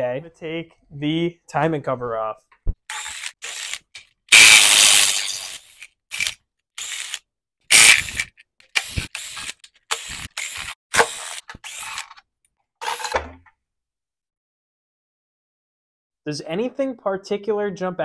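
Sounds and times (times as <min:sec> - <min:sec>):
cordless ratchet spinning bolts: 0:02.9 - 0:12.2.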